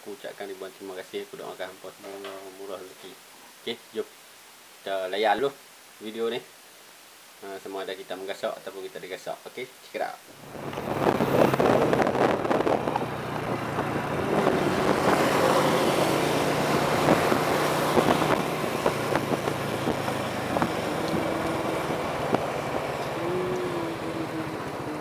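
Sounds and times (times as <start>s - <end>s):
road noise: 10.3s - 25.0s
motorcycle engine running: 10.4s - 25.0s.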